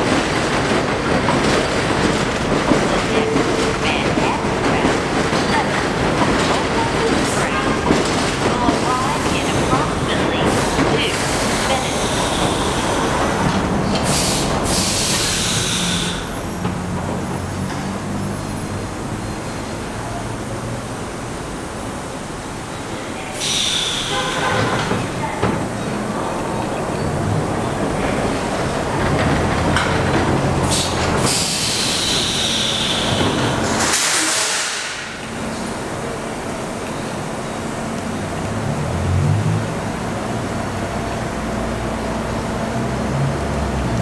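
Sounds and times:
subway train rumbling on track: 0.0s - 44.0s
loud hiss: 14.0s - 16.3s, 23.4s - 24.8s, 30.7s - 35.2s.

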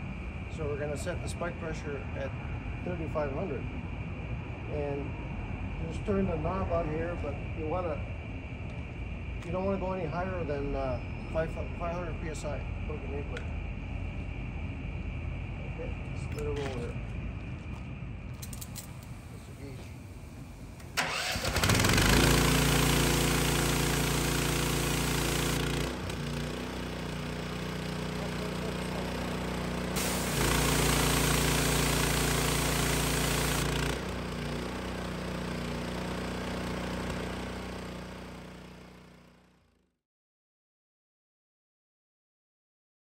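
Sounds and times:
water jet hissing: 18.4s - 25.8s, 29.8s - 34.1s
pressure washer engine running: 18.4s - 39.5s.

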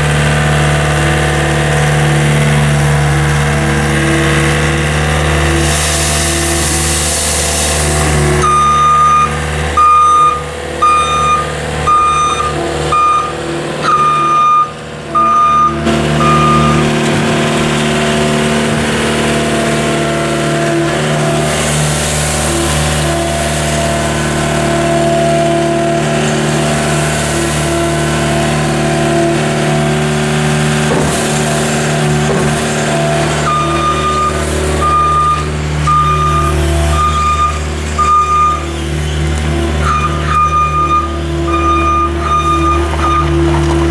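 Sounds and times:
skid steer engine under load: 0.0s - 43.9s
reverse alarm beeping: 8.4s - 16.8s, 33.4s - 38.6s, 39.8s - 43.4s.

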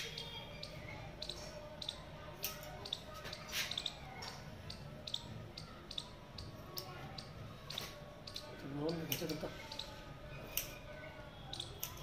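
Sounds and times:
scissors snipping hair: 2.4s - 2.7s, 9.0s - 9.8s, 10.5s - 10.8s, 11.6s - 12.0s.

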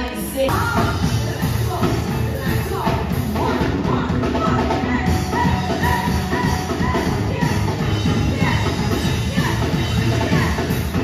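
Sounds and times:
steel pan band playing: 0.5s - 11.0s.

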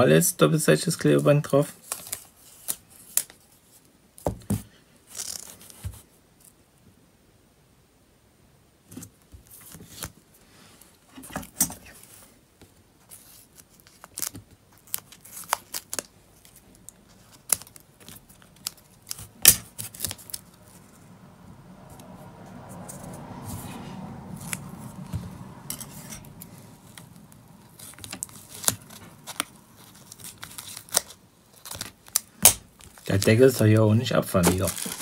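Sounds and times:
tape crackling: 1.2s - 6.6s, 9.0s - 35.0s.

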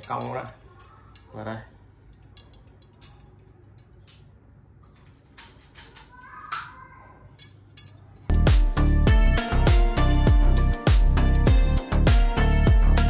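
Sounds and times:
loud music with a beat: 8.3s - 13.0s.

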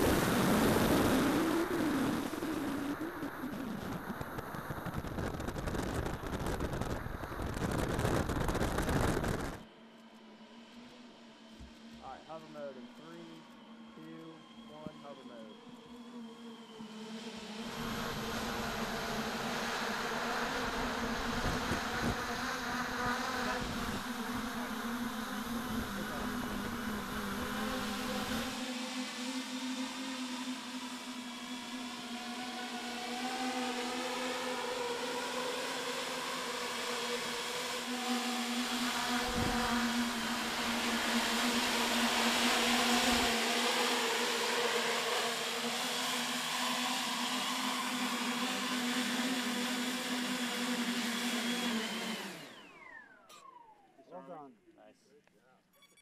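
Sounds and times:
wind rumble on microphone: 0.0s - 9.6s, 20.4s - 28.6s, 39.0s - 43.4s
propeller aircraft buzzing drone: 0.0s - 54.4s.

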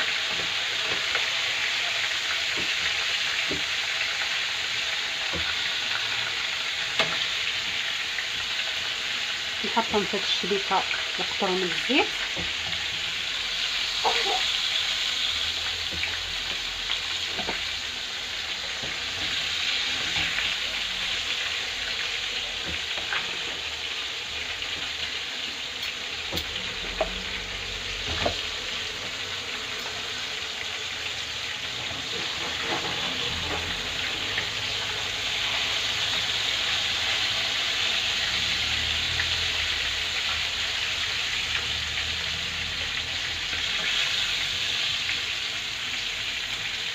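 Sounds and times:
fish frying in hot oil: 0.0s - 46.9s.

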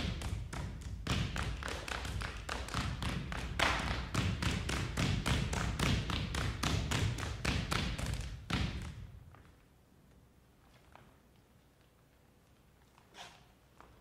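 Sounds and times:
shoes striking wooden stage floor: 0.0s - 9.6s.

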